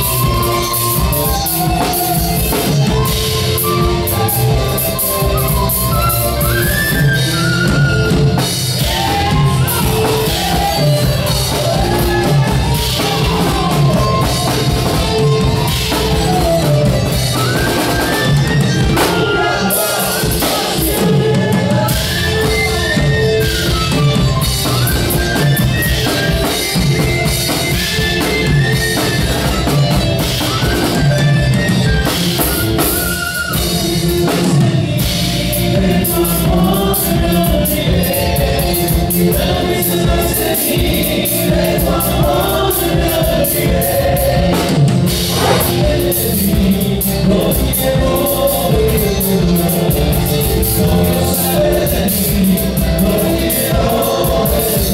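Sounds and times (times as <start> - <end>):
drum kit: 0.0 - 54.9
men singing: 0.0 - 54.9
strummed charangos and guitars: 0.0 - 54.9.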